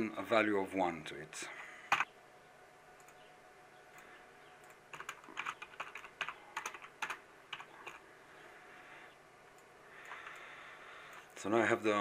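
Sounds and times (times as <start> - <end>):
typing on computer keyboard: 4.6 - 8.0.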